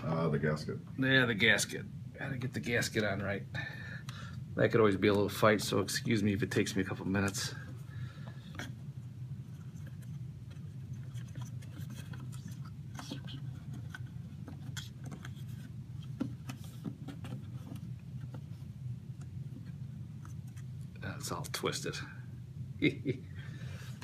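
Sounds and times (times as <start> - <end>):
steady low hum: 0.0 - 24.0
faint clicks and rubbing: 9.4 - 21.6.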